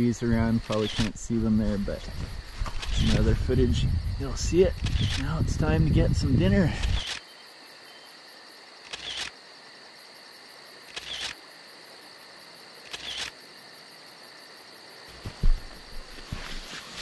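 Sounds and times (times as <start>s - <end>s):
footsteps crunching in snow: 15.1s - 17.0s
gear rustling and knocking in tent: 15.1s - 17.0s
sharp thump: 15.2s - 16.1s.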